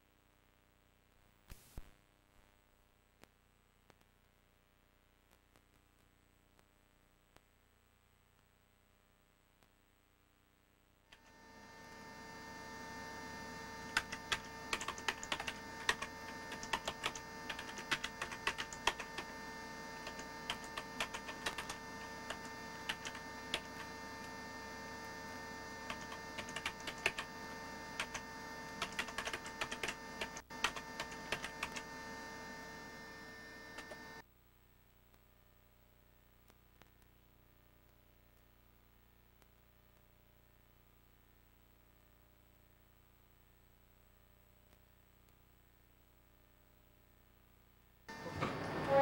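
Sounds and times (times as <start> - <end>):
steady electrical hum: 0.2 - 49.0
keyboard typing: 13.8 - 24.6, 25.6 - 31.9, 33.8 - 34.2.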